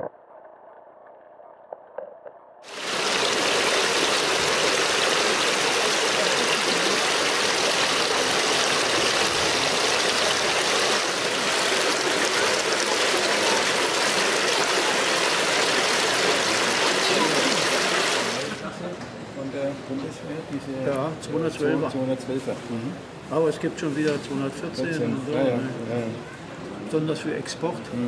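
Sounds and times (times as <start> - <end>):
running water rushing: 2.6 - 18.7.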